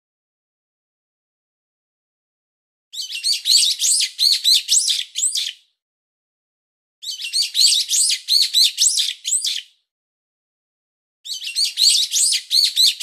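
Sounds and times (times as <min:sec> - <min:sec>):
chicks cheeping: 0:03.0 - 0:05.5, 0:07.0 - 0:09.6, 0:11.3 - 0:13.0.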